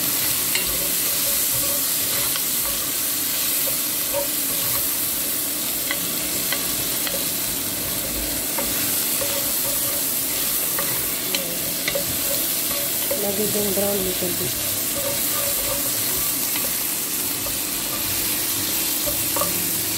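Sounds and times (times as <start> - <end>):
onions sizzling in hot fat: 0.0 - 19.9
wooden spoon scraping pot: 14.5 - 16.8.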